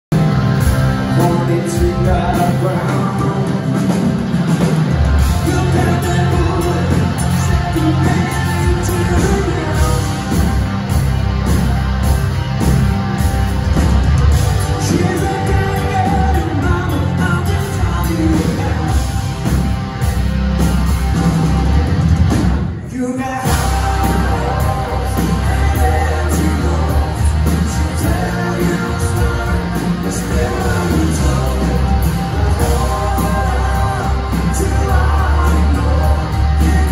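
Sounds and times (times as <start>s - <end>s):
live rock band playing: 0.1s - 36.9s
person singing: 1.0s - 4.3s, 5.2s - 10.7s, 14.5s - 19.7s, 22.8s - 36.9s.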